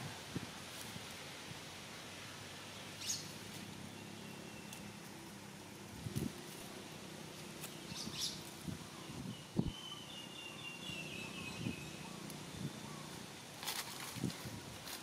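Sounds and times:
background hiss: 0:00.0 - 0:15.0
thin high wavering call: 0:07.8 - 0:13.4.

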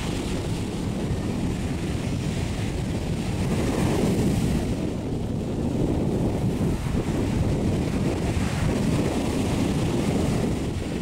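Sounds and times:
waves breaking on shore: 0:00.0 - 0:11.0
wind buffeting microphone: 0:00.0 - 0:11.0.

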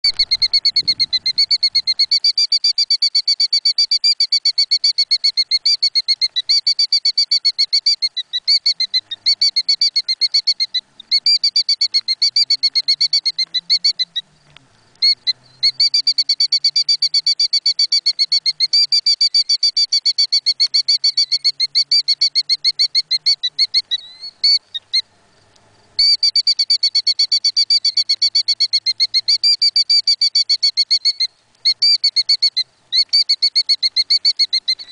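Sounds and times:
bird shrill alarm calls: 0:00.1 - 0:14.3, 0:15.0 - 0:25.1, 0:26.0 - 0:34.9.

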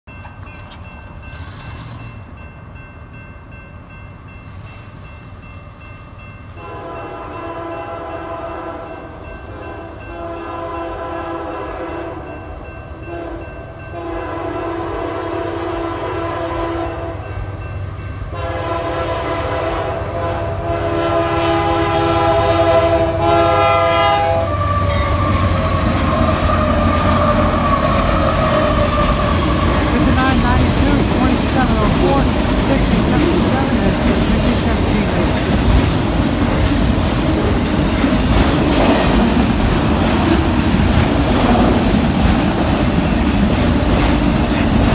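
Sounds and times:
crossing bell ringing: 0:00.0 - 0:14.7, 0:16.9 - 0:19.1, 0:22.1 - 0:41.0
train rumbling past: 0:00.1 - 0:44.9
locomotive air horn blasts: 0:06.6 - 0:12.2, 0:13.0 - 0:17.3, 0:18.3 - 0:35.3.

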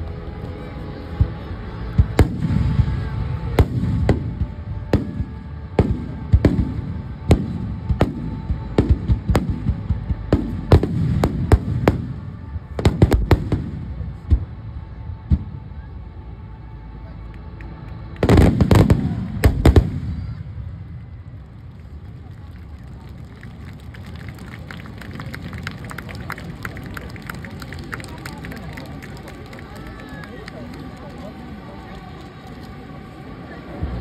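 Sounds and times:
low rumbling echo: 0:00.0 - 0:28.5
fireworks bursting with sharp bangs: 0:02.0 - 0:15.6, 0:18.2 - 0:21.2.

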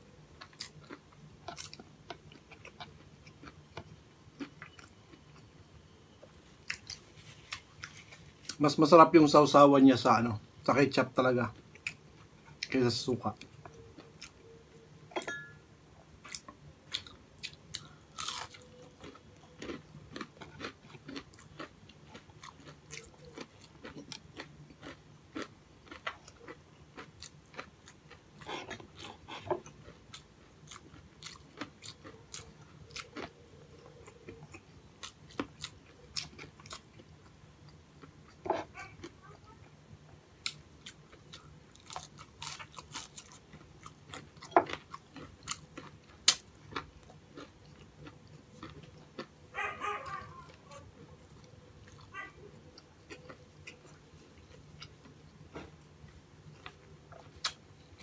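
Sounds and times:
man chewing crunchy food: 0:00.3 - 0:05.6, 0:06.2 - 0:08.7, 0:11.5 - 0:15.2, 0:16.0 - 0:58.0.

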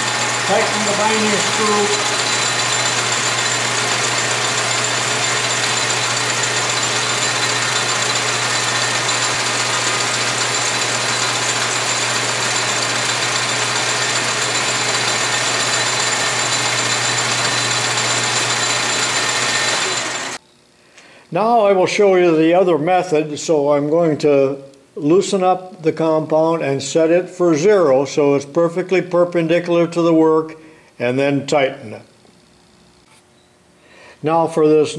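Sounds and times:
lathe running with high whine: 0:00.0 - 0:20.4.

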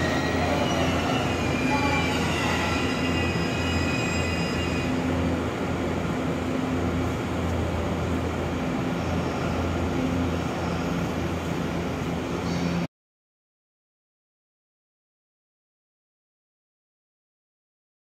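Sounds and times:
electric train low hum: 0:00.0 - 0:12.9.

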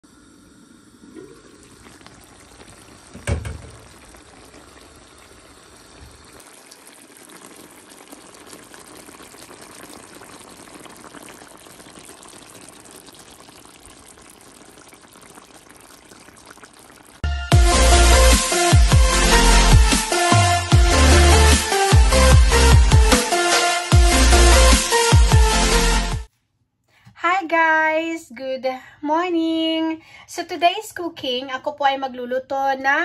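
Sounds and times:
food simmering with bubbling hiss: 0:00.0 - 0:17.2
knock: 0:03.2 - 0:03.8.

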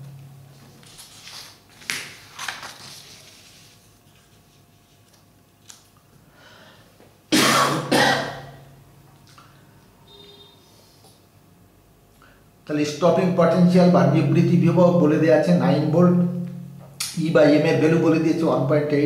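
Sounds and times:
paper sliding: 0:00.8 - 0:05.2
man clearing his throat: 0:07.3 - 0:08.7.

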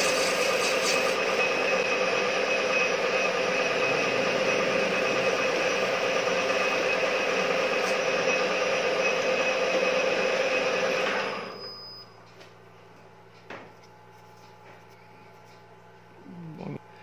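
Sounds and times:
lathe motor hum: 0:00.0 - 0:11.6
high whine: 0:00.0 - 0:12.5.

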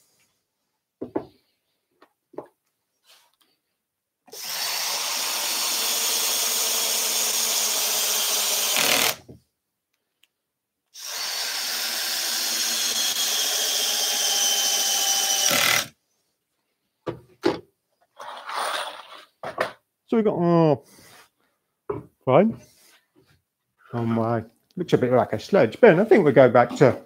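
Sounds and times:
drill driving screws into wood: 0:04.3 - 0:09.3, 0:11.0 - 0:16.0.

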